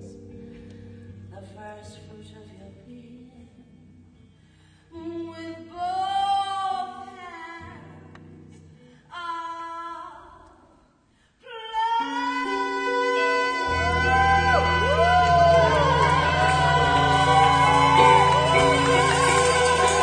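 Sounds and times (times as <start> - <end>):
sparse guitar with bass notes: 0.0 - 1.3, 13.4 - 20.0
woman singing with vibrato: 4.9 - 8.0, 11.4 - 20.0.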